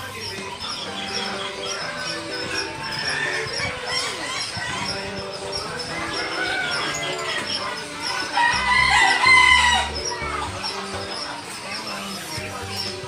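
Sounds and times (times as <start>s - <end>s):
background music: 0.0s - 13.0s
rooster crowing: 8.1s - 10.0s.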